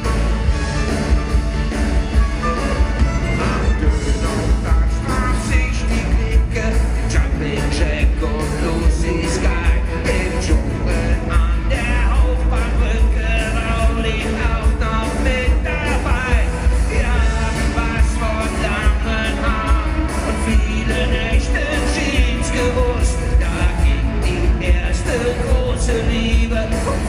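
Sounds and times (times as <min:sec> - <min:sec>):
live rock band playing: 0:00.0 - 0:27.0
person singing: 0:02.5 - 0:27.0.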